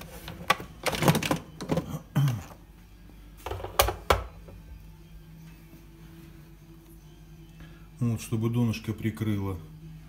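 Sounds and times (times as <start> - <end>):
kitchen items clicking and knocking: 0.0 - 2.5, 3.4 - 4.4
faint steady hum: 4.4 - 8.5.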